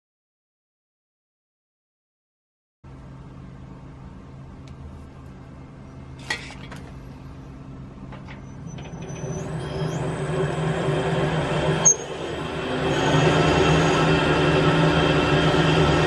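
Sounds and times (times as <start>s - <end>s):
lathe motor whine: 8.3s - 16.0s.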